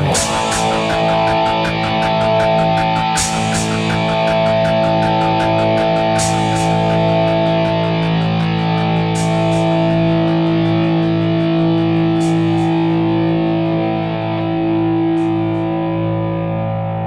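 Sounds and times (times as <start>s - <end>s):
quick ticking beat: 0.0s - 9.8s
distorted electric guitar chords: 0.0s - 17.0s.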